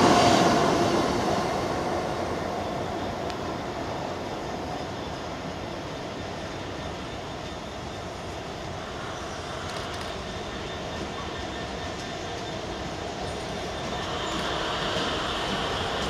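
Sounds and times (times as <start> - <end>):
diesel locomotive running: 0.0 - 16.0.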